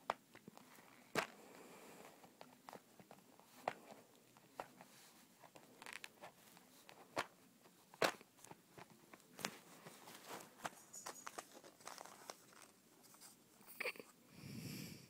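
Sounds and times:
dog crunching dry kibble: 8.1 - 12.8.

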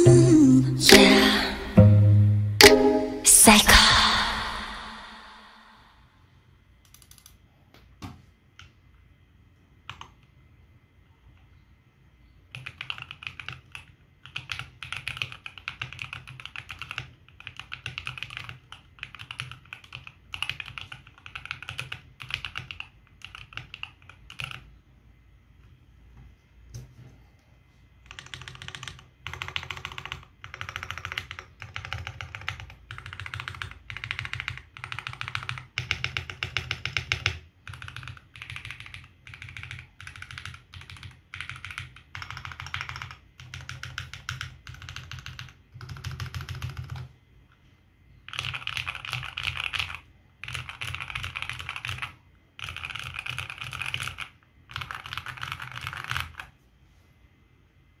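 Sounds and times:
mechanical keyboard typing: 6.8 - 7.4, 9.8 - 10.3, 12.5 - 24.7, 28.0 - 47.1, 48.2 - 56.6.

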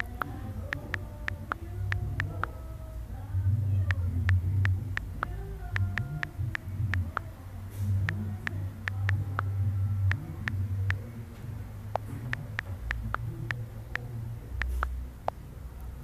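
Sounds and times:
phone keyboard taps: 0.0 - 2.5
low steady hum: 0.0 - 16.0.

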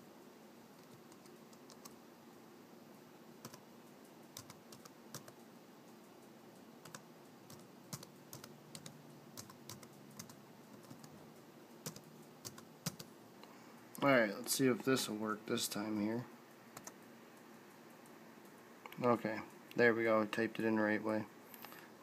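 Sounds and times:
faint keyboard typing: 0.7 - 2.0, 3.4 - 11.2, 11.8 - 14.5, 15.8 - 20.8.

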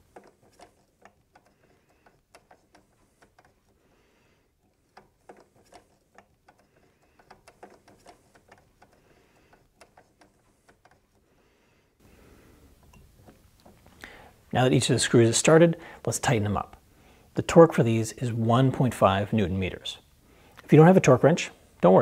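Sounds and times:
small screws clicking: 0.0 - 3.8, 4.5 - 11.3.

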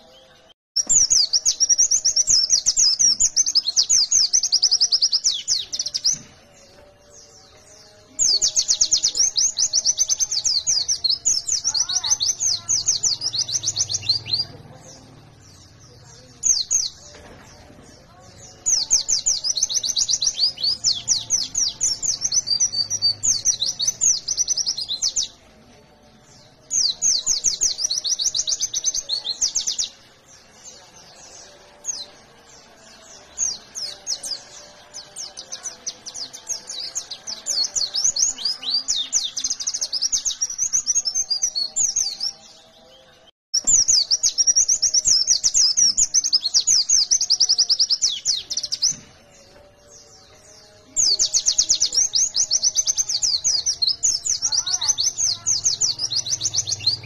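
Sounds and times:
bird high rapid chirping song: 0.0 - 25.4, 26.2 - 42.9, 43.5 - 57.0.

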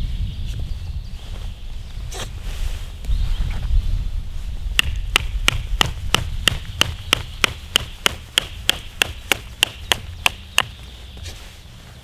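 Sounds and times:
knife striking wooden stick: 4.8 - 10.8.

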